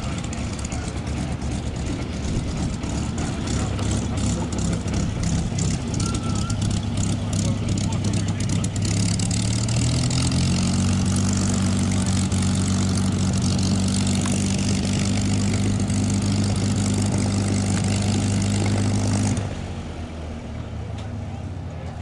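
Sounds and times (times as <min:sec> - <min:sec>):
faint rumble: 0:00.0 - 0:10.2
aircraft engine idling: 0:00.0 - 0:22.0.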